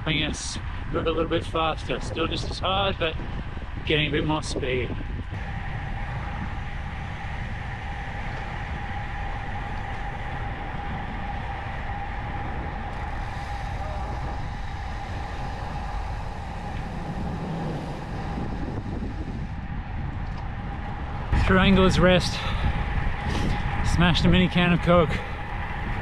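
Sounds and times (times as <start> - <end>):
bicycle tyre roar on asphalt: 0.0 - 26.0
constant high hum: 0.0 - 26.0
wind rushing over microphone: 0.0 - 26.0.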